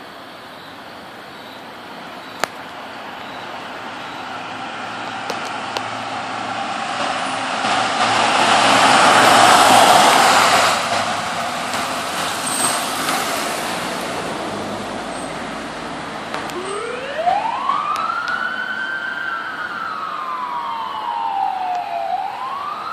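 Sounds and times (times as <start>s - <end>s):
vehicle engine and tyres rushing: 0.0s - 22.9s
siren wailing: 16.4s - 22.9s.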